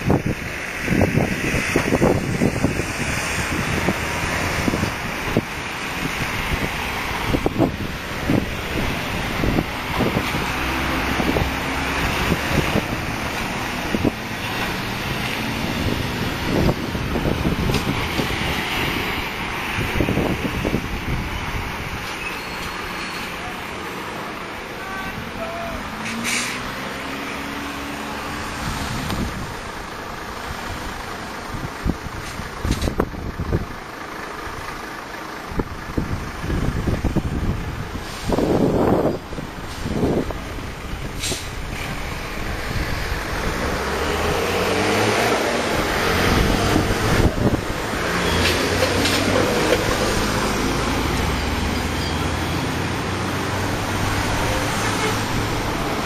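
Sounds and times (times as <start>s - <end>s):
wind on microphone: 0.0s - 22.1s, 28.3s - 29.8s, 35.6s - 51.7s
car engine and road noise: 0.0s - 56.0s
street traffic: 0.0s - 56.0s.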